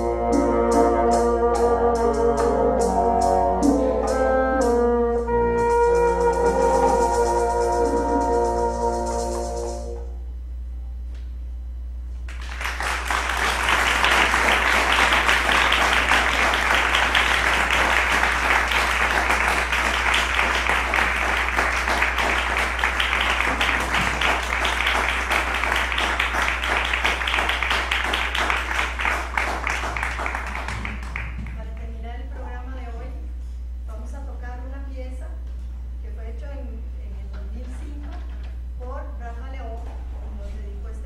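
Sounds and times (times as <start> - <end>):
audience applauding: 12.3 - 31.8.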